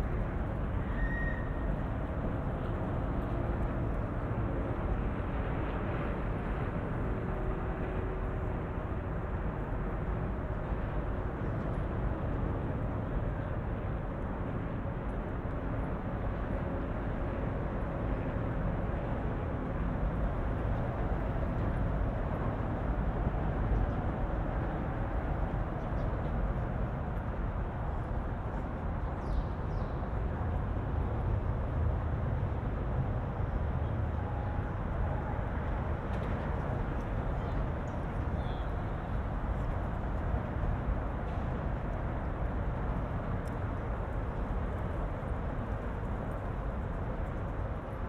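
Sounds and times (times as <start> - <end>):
road traffic hum: 15.6 - 48.0.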